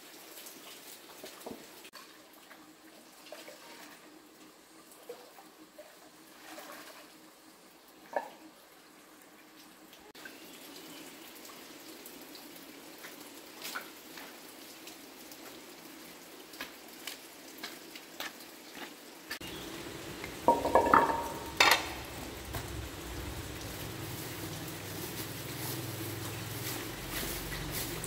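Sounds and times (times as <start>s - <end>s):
running water: 0.0s - 28.0s
footsteps on wet stones: 16.6s - 19.5s
metal cooking pots clanking: 20.2s - 22.7s.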